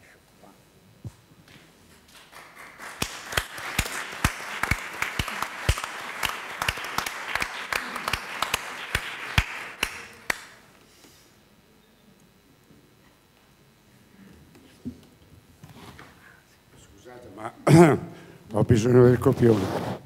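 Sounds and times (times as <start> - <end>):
audience applauding: 2.1 - 10.6
close hand claps: 2.1 - 10.6.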